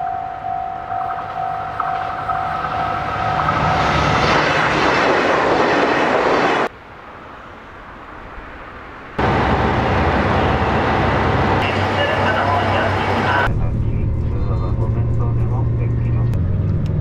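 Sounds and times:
level crossing warning bell: 0.0s - 3.7s
train wheels on rails: 1.2s - 6.7s, 9.2s - 13.5s
loud rumble with low hum: 9.2s - 17.0s.

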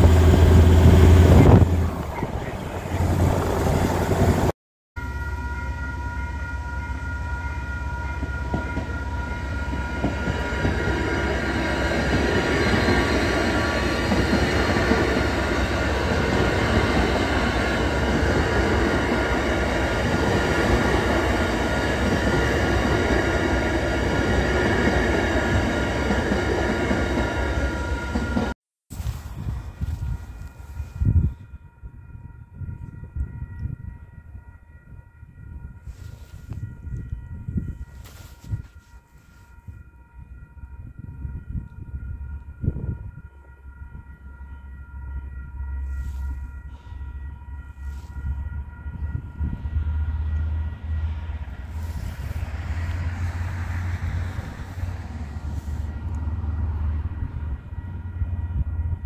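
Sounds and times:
wind and road noise: 0.0s - 4.5s, 28.9s - 44.3s, 47.1s - 59.0s
crossing warning bells ringing: 0.0s - 59.0s
train rumbling: 0.0s - 59.0s.

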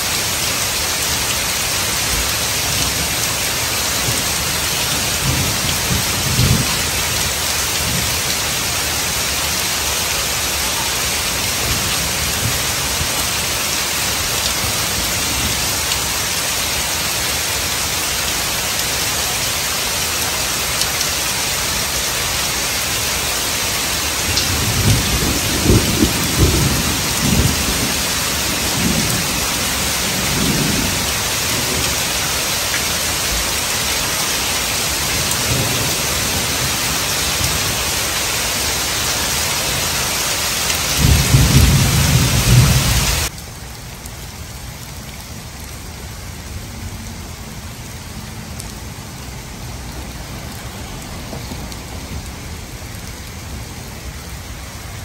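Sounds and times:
heavy rain on pavement: 0.0s - 55.0s
thunder rumbling: 2.1s - 8.2s, 24.1s - 32.2s, 40.9s - 43.3s.

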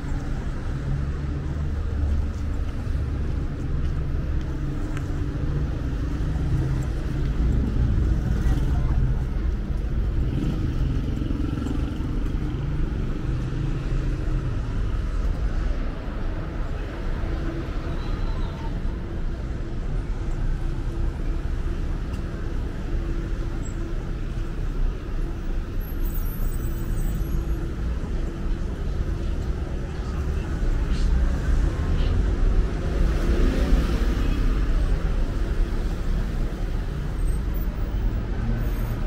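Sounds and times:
cars driving past: 0.0s - 17.8s.

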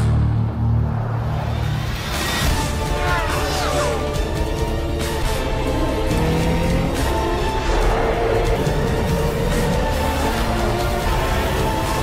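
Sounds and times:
rush of noise: 0.0s - 4.3s.

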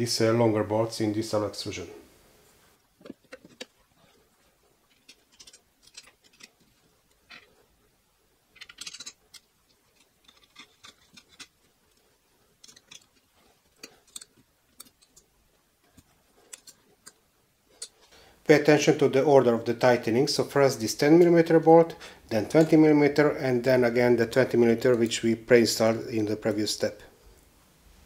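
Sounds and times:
small metal parts handled: 3.0s - 4.2s, 4.8s - 7.6s, 8.5s - 18.0s
hex key clicking on bolts: 8.6s - 11.4s.

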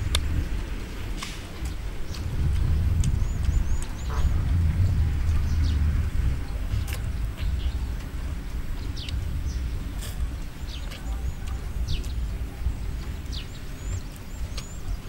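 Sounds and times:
steady low rumble: 0.0s - 15.0s
birds whistling: 8.8s - 15.0s.

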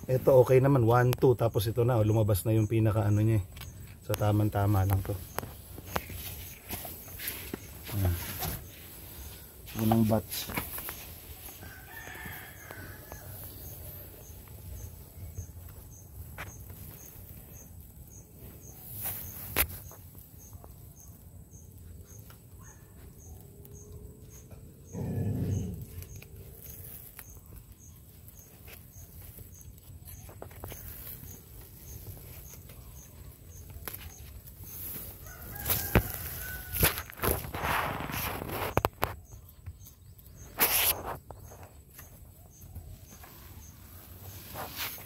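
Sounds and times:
animal call: 24.8s - 26.2s.

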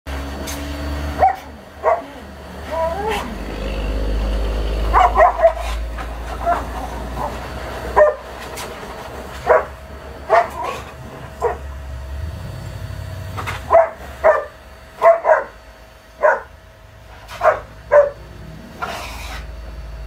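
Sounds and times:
large dog barking: 1.1s - 3.4s, 4.3s - 8.5s, 9.4s - 11.8s, 13.6s - 15.6s, 16.2s - 16.6s, 17.2s - 18.3s.

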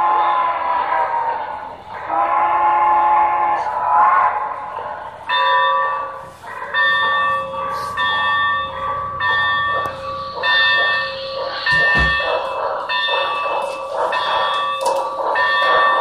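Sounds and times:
locomotive bell ringing: 4.6s - 16.0s.

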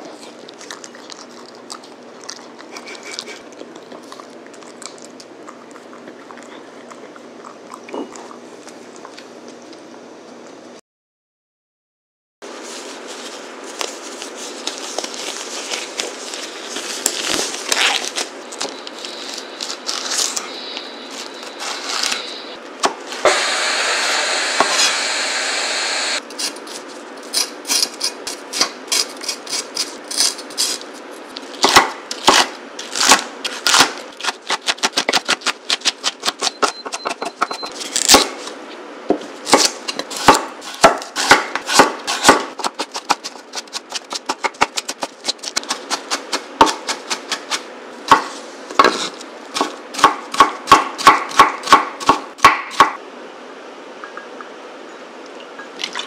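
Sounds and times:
disposable gloves rustling: 12.5s - 22.4s
knife chopping on wooden board: 31.6s - 32.5s, 39.1s - 43.3s, 45.6s - 53.0s.

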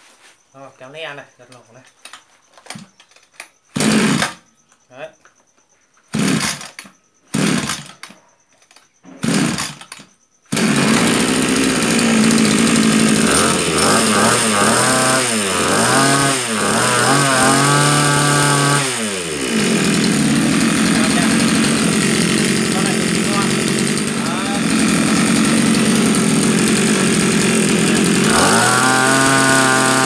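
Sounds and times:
brush cutter engine running: 3.8s - 4.4s, 6.1s - 8.0s, 9.2s - 30.0s
engine pull-start: 6.1s - 30.0s.

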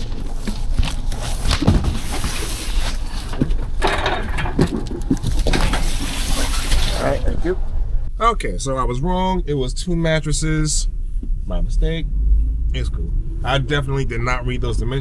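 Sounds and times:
cardboard boxes scraping and sliding: 0.0s - 3.7s, 5.2s - 7.2s.

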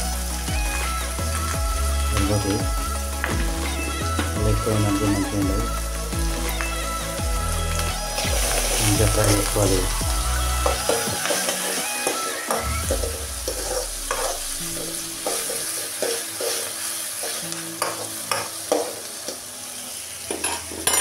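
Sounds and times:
vegetables sizzling in hot oil: 0.0s - 21.0s
metal spoon scraping a pan: 13.5s - 18.9s, 20.3s - 21.0s.

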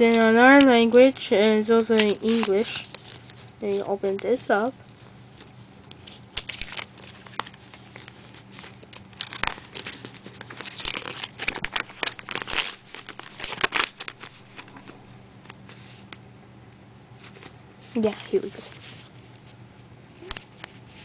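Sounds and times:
paper crinkling and rustling: 1.9s - 4.7s, 5.3s - 15.1s, 17.2s - 19.6s.

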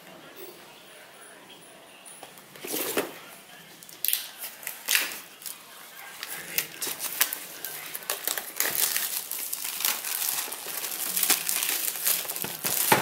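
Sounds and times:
plastic film crinkling: 3.9s - 13.0s.

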